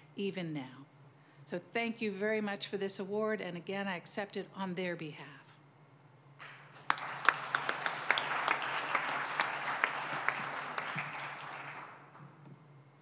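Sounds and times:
audience applauding: 6.4 - 12.3.

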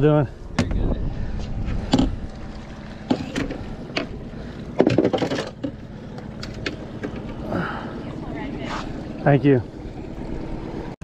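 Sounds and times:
steady low rumble: 0.0 - 11.0
knocks and rattles on boat deck: 0.5 - 1.0, 1.8 - 7.4.

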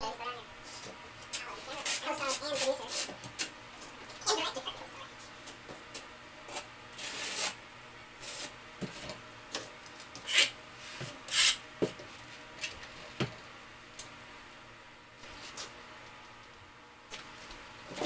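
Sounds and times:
trowel scraping mortar on tile: 6.5 - 7.6, 10.3 - 10.5, 11.3 - 11.6.

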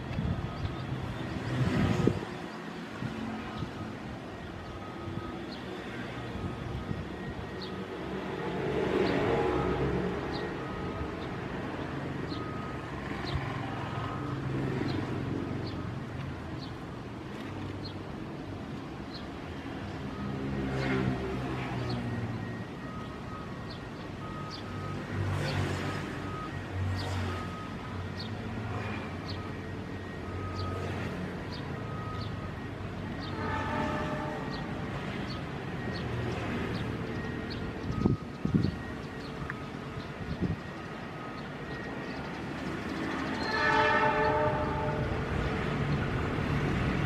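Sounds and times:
multi-tone train horn blast: 33.2 - 35.3, 43.3 - 45.8.

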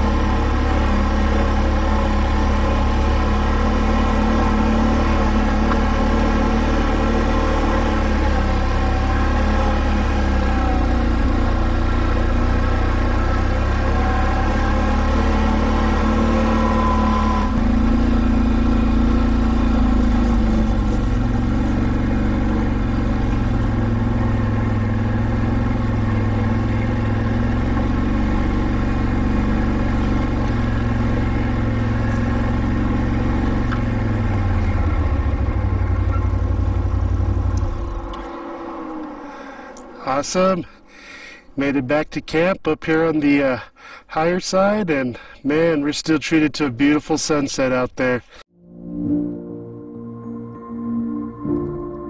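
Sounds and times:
atv engine running: 0.0 - 41.4.

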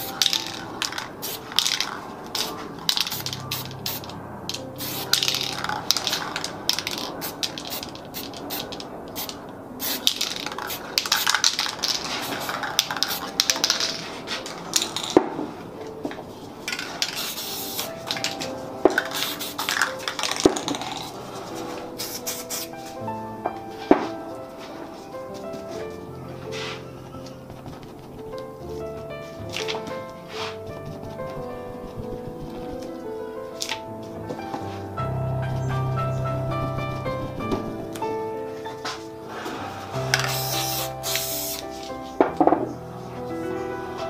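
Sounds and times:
spray paint can hissing: 0.0 - 15.3, 16.6 - 23.0, 30.3 - 33.0, 39.3 - 41.9.

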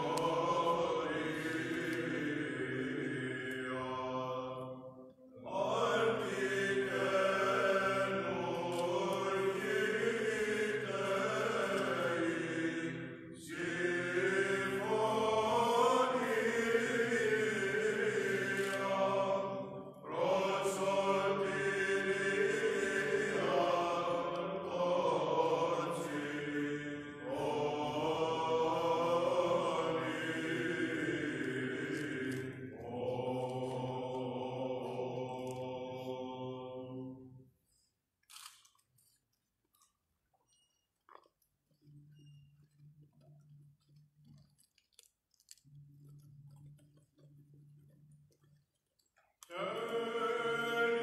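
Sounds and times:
men chanting unaccompanied: 5.4 - 37.1, 49.5 - 51.0.

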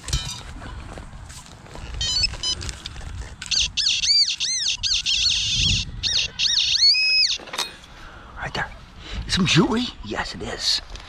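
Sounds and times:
metal detector pinpointer beeping: 2.0 - 2.8.

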